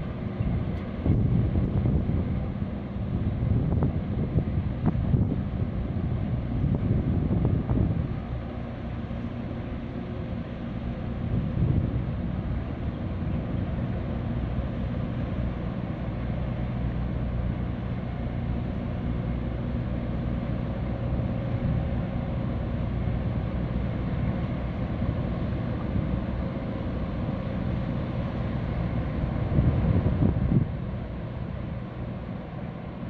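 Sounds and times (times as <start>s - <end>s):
diesel engines droning: 0.0s - 33.0s
propeller churning water: 0.0s - 33.0s
wind gust on microphone: 0.4s - 8.3s, 29.3s - 30.9s.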